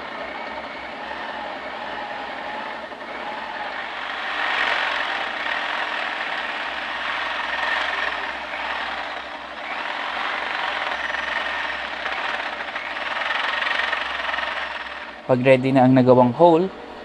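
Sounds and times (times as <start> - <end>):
electric drill boring into wood: 3.2 - 15.2.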